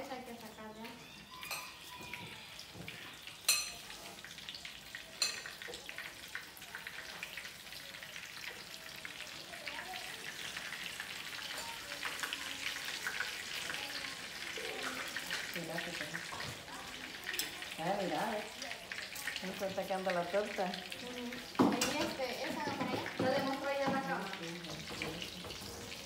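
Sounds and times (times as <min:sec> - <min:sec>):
fritters sizzling in oil: 0:00.0 - 0:26.0
utensils clinking on pan: 0:01.4 - 0:01.9, 0:03.4 - 0:04.3, 0:05.2 - 0:05.8, 0:21.5 - 0:26.0.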